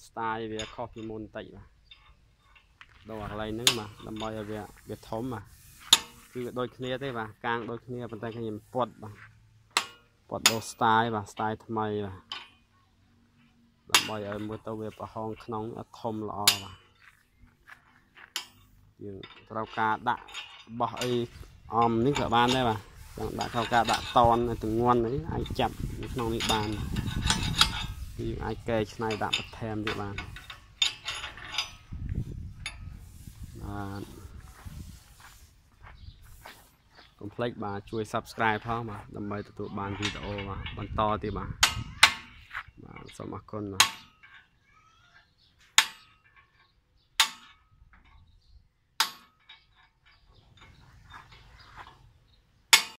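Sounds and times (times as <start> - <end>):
metal clinking and scraping: 0.4 - 44.6, 45.4 - 53.0
man speaking: 3.0 - 5.4, 6.3 - 9.2, 13.9 - 16.7, 19.0 - 27.0, 28.2 - 30.4, 33.5 - 34.4, 37.2 - 41.6.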